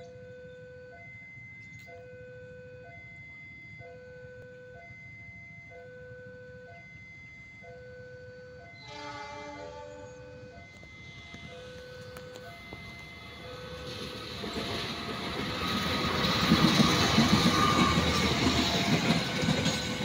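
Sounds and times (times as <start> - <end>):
locomotive horn chord: 8.6 - 14.1.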